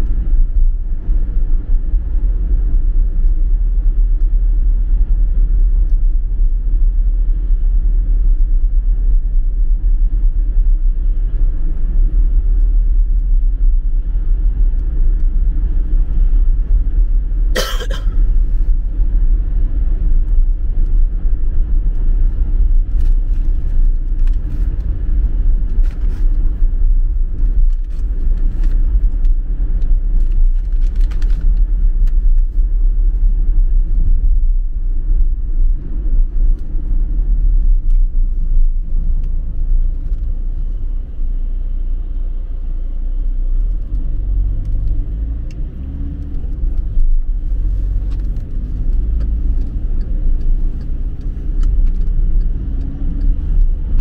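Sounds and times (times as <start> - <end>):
road and engine rumble: 0.0 - 54.0
person coughing: 17.5 - 18.2.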